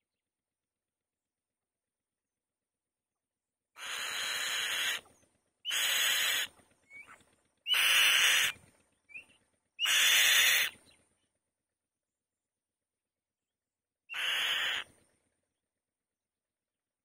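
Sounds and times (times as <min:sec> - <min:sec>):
bird harsh hissing screeches: 0:03.8 - 0:05.0, 0:05.7 - 0:06.5, 0:07.7 - 0:08.6, 0:09.8 - 0:10.8, 0:14.2 - 0:14.9.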